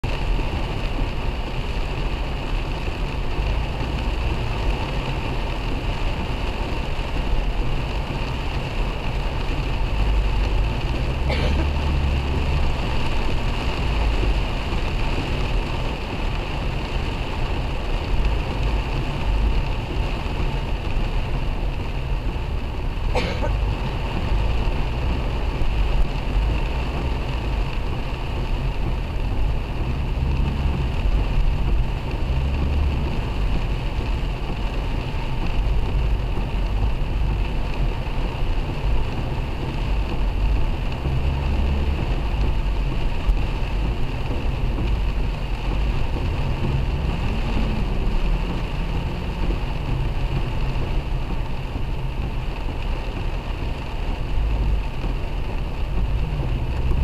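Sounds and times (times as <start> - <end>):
heavy rain on car roof: 0.0 - 57.0
road and engine noise: 0.0 - 57.0.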